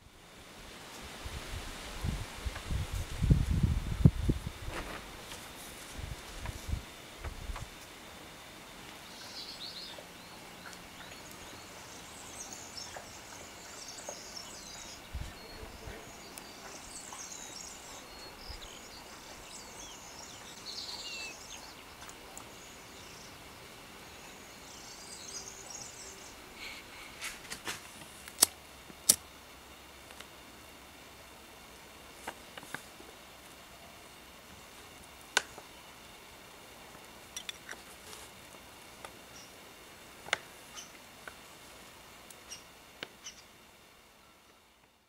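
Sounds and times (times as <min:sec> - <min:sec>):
faint birds chirping: 0:06.4 - 0:27.4, 0:30.6 - 0:45.0.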